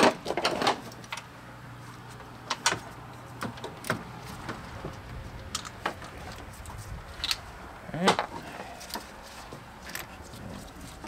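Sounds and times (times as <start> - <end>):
hand tools clicking and knocking: 8.0 - 10.2.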